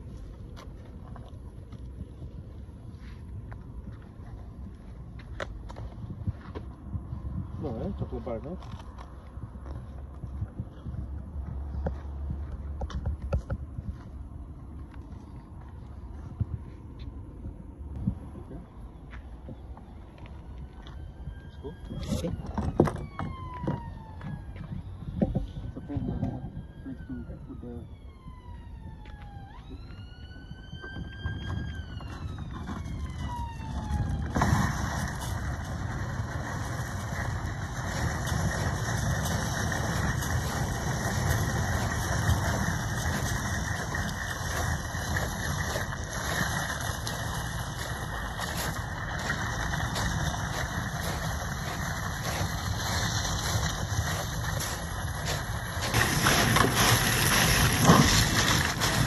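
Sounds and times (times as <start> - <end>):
emergency siren wailing: 18.1 - 59.0
trolley wheels rolling over shingle: 32.0 - 59.0.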